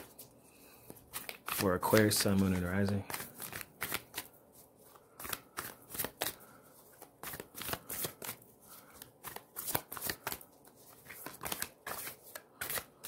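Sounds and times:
cards being shuffled: 0.0 - 13.0.

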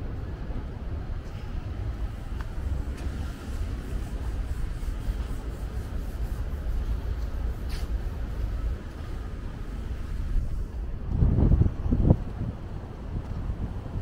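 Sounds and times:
wind gusting on microphone: 0.0 - 14.0.

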